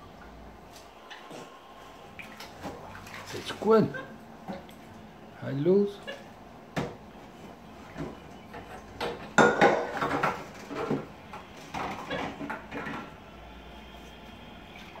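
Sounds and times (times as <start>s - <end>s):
dishes clattering in a sink: 7.8s - 13.2s.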